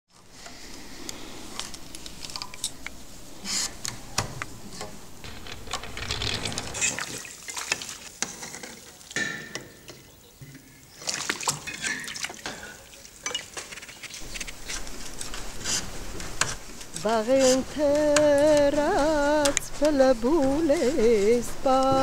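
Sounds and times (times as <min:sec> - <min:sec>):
liquid sloshing in a vat: 0:06.4 - 0:09.6, 0:10.9 - 0:16.9
wool scratching through comb tines: 0:13.6 - 0:22.0.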